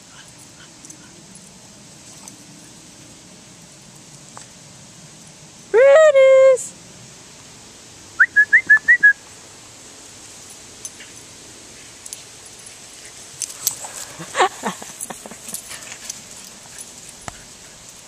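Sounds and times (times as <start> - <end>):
sprinkler spray hissing: 0.0 - 18.0
person whistling short high notes: 8.2 - 9.2.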